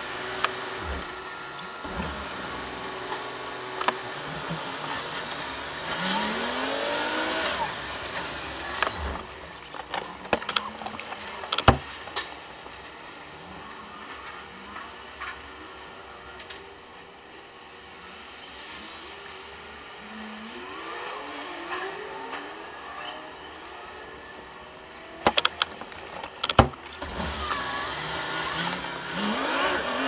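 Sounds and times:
diesel engine running: 0.0s - 17.3s
clicks and knocks in cab: 9.8s - 12.3s, 25.2s - 26.9s.

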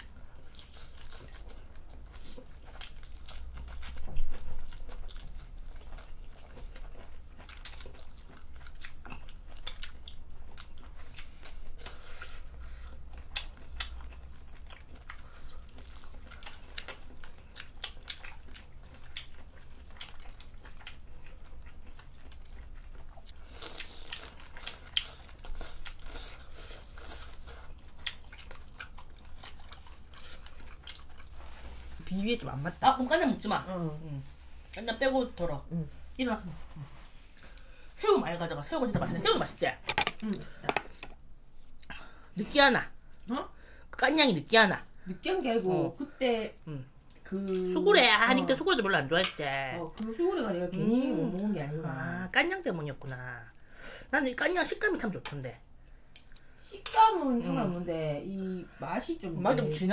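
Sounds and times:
close-miked chewing: 0.0s - 37.9s, 46.5s - 53.8s.

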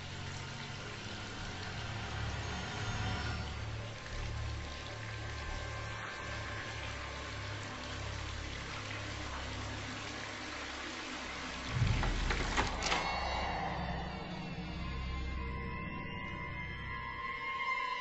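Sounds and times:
heavy thump: 11.7s - 13.0s.

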